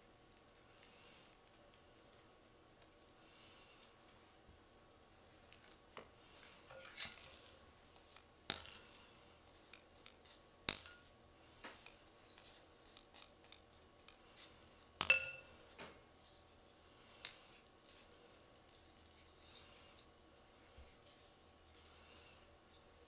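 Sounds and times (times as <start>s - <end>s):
metal spatula clinking on glass bowl: 15.0s - 15.5s.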